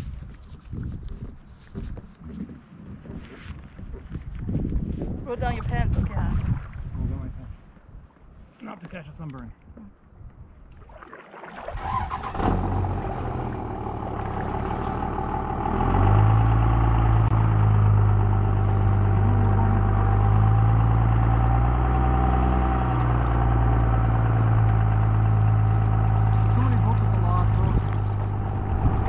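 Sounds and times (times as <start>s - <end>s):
engine droning steadily: 12.0s - 29.0s.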